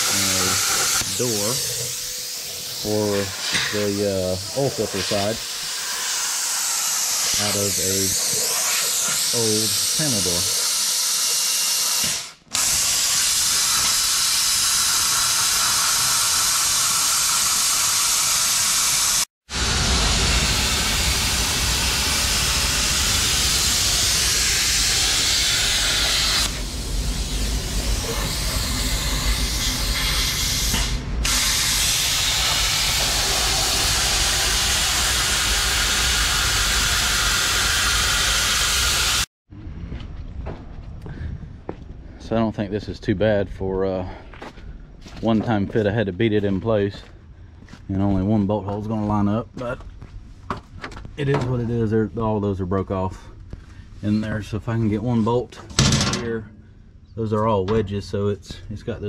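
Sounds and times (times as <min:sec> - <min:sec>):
plasma cutter hissing: 0:00.0 - 0:39.3.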